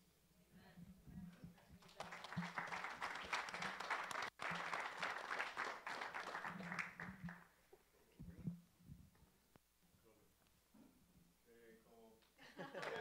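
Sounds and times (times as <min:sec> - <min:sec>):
congregation applauding: 0:01.8 - 0:07.6, 0:12.6 - 0:13.0.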